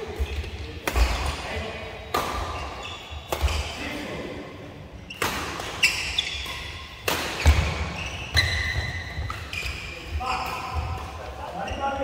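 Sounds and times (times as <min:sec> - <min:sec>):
racket hitting shuttlecock: 0:00.2 - 0:03.8, 0:05.1 - 0:11.2
shoes squeaking on court: 0:02.4 - 0:03.8, 0:05.0 - 0:12.0.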